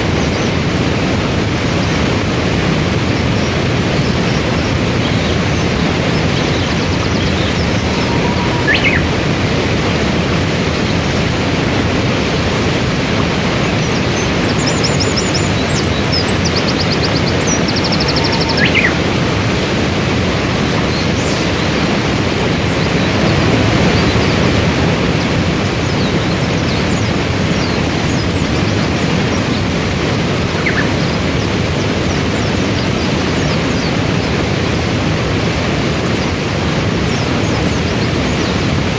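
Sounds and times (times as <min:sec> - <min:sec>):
waterfall rushing: 0:00.0 - 0:38.9
rapid bird trill: 0:01.7 - 0:10.0, 0:13.7 - 0:34.9
bird chirps: 0:02.9 - 0:09.4, 0:13.8 - 0:34.4.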